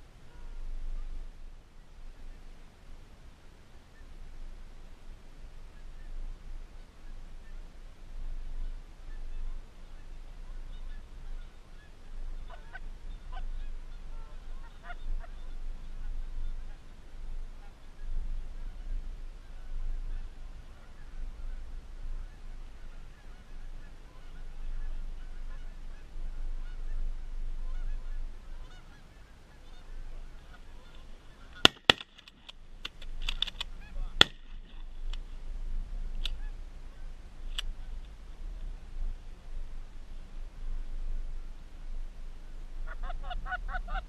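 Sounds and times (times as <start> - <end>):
geese honking overhead: 8.6 - 32.4, 42.8 - 44.0
sharp loud cracks: 31.6 - 34.8.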